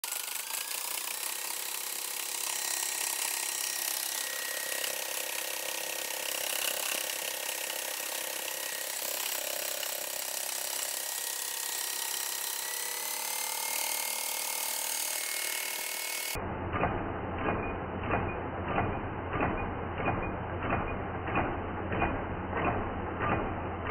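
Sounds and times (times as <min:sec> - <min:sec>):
electric motor whine: 0:00.0 - 0:16.4
mechanical clatter of crankshaft: 0:16.6 - 0:23.9.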